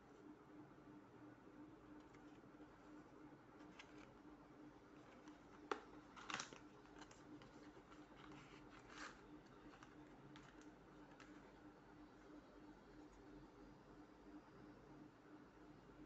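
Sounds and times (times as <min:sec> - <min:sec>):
cardboard rustle: 0:05.0 - 0:11.4.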